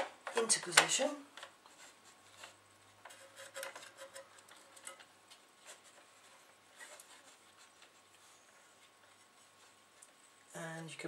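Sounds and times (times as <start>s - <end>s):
hands rubbing plastic and metal: 0.0s - 10.4s
low steady hum: 0.0s - 11.0s.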